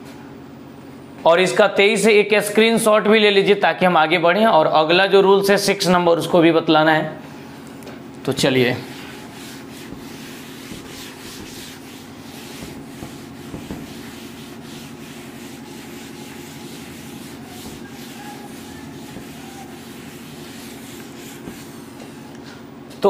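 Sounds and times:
cloth duster wiping chalkboard: 0:08.4 - 0:22.4.

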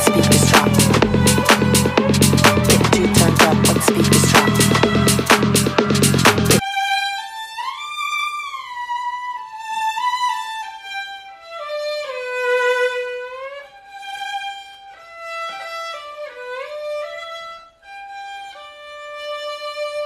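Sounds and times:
slow solo violin melody: 0:06.6 - 0:20.0.

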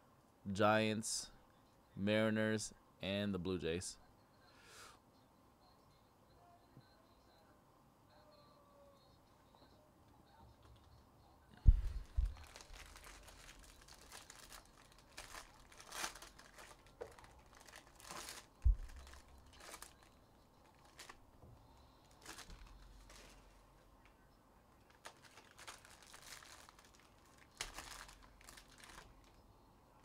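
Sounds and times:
wrappers tearing and crinkling: 0:12.0 - 0:21.2, 0:22.0 - 0:23.4, 0:24.8 - 0:29.4
dull thumps: 0:18.6 - 0:19.2.

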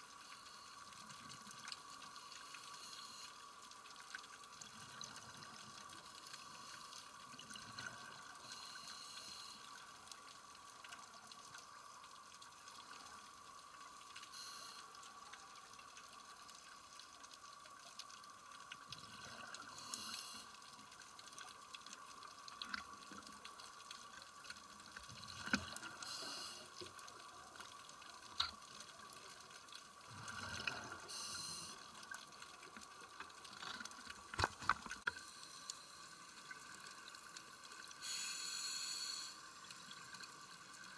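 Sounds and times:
exhaled bubbles hissing: 0:04.6 - 0:10.2, 0:12.7 - 0:15.2, 0:18.9 - 0:21.3, 0:24.1 - 0:32.2, 0:34.1 - 0:40.3
diver breathing on a regulator: 0:08.4 - 0:09.8, 0:19.6 - 0:20.6, 0:26.0 - 0:26.8, 0:30.2 - 0:31.8, 0:38.0 - 0:39.4.

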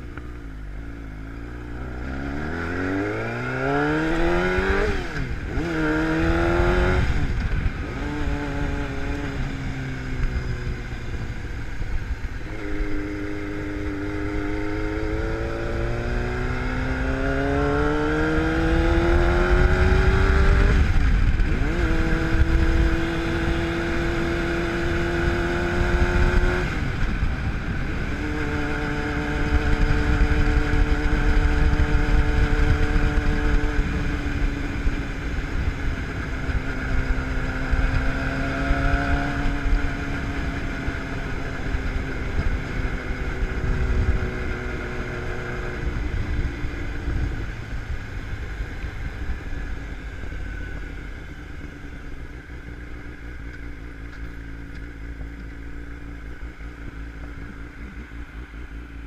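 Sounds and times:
motorcycle engine revving: 0:00.0 - 0:59.0
wind rushing over microphone: 0:01.7 - 0:53.0.

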